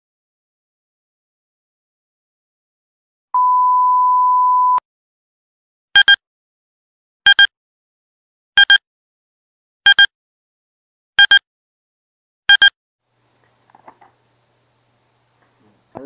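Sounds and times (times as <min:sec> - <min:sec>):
quick double beep: 0:03.4 - 0:04.8, 0:06.0 - 0:06.2, 0:07.3 - 0:07.5, 0:08.6 - 0:08.8, 0:09.9 - 0:10.1, 0:11.2 - 0:11.4, 0:12.5 - 0:12.7.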